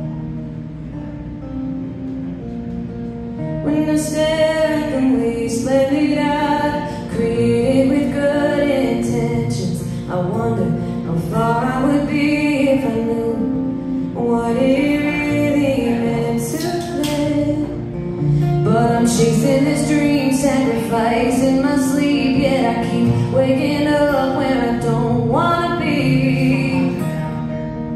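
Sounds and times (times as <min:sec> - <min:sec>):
acoustic guitar strumming: 0:00.0 - 0:27.9
woman singing: 0:03.6 - 0:27.6.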